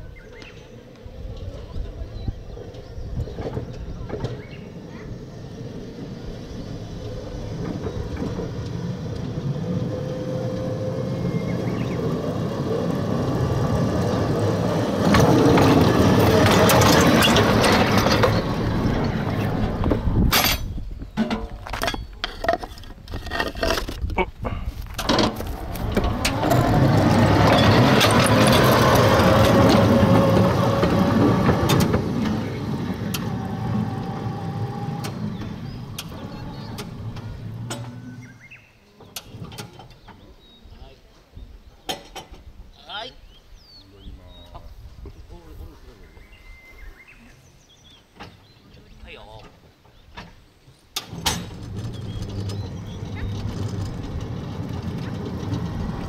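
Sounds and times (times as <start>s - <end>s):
small train rumbling on track: 0.0s - 56.0s
sharp clanks: 15.0s - 24.2s.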